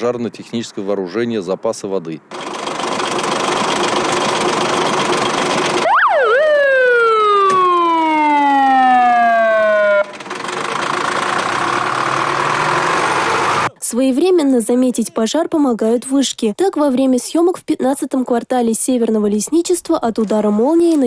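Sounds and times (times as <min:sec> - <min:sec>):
truck engine running: 0:02.3 - 0:13.7
siren whooping: 0:05.8 - 0:10.1.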